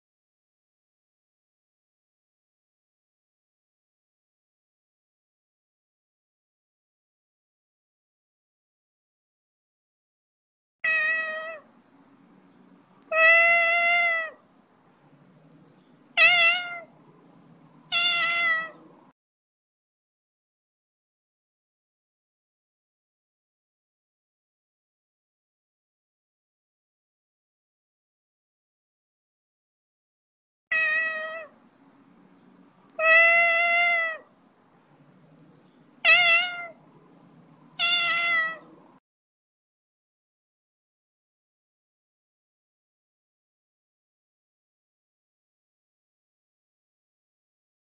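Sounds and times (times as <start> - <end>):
cat meowing: 10.8 - 11.7, 13.0 - 14.4, 16.1 - 16.9, 17.8 - 18.9, 30.7 - 31.6, 32.9 - 34.3, 36.0 - 37.1, 37.7 - 38.9.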